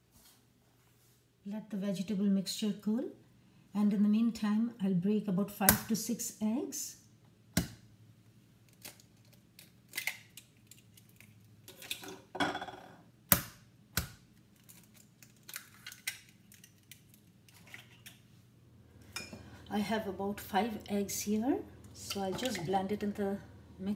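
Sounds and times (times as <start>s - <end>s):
eggshells crackling apart: 8.7s - 12.0s, 14.3s - 18.2s.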